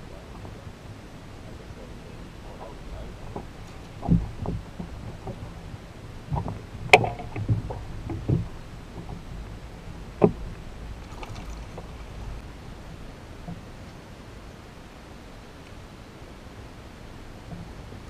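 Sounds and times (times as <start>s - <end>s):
gear knocking on boat hull: 3.3s - 9.5s.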